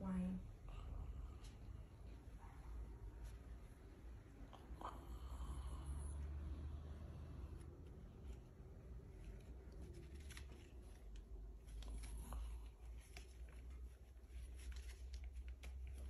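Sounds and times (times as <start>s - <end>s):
low steady hum: 0.0s - 16.0s
faint rustling: 7.0s - 16.0s.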